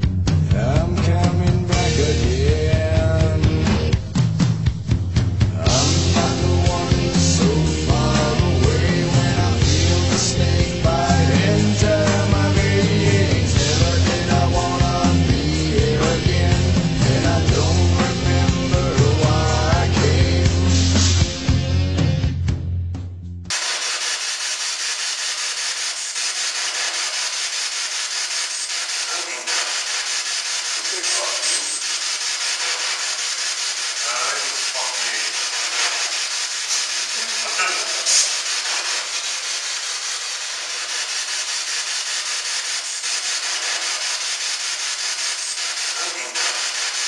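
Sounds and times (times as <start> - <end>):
static hiss: 23.5 - 47.0
faint broken voice fragments: 28.9 - 29.9, 34.0 - 36.1, 37.1 - 39.0.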